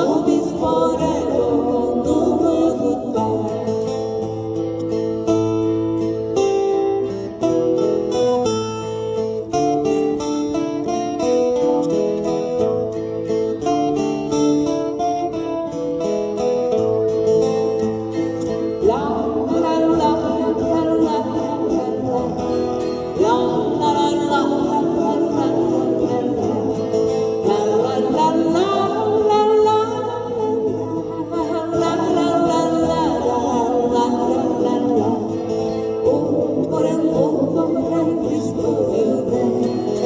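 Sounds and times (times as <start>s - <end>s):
voices singing together: 0.0s - 3.9s, 18.8s - 40.0s
acoustic guitars strumming: 0.0s - 40.0s.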